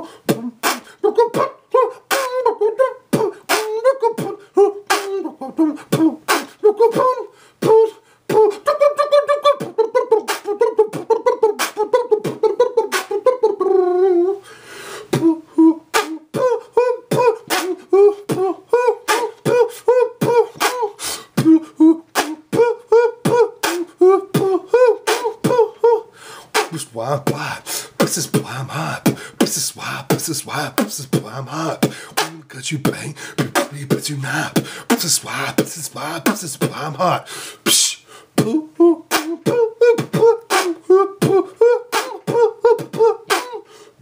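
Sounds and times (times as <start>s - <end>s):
hummed tune: 0.0s - 14.4s, 15.1s - 43.6s
man beatboxing: 0.0s - 14.5s, 15.1s - 44.0s
breathy hiss: 14.4s - 15.6s, 27.3s - 30.6s, 31.8s - 32.2s, 33.1s - 33.4s, 34.1s - 35.8s, 37.2s - 38.4s.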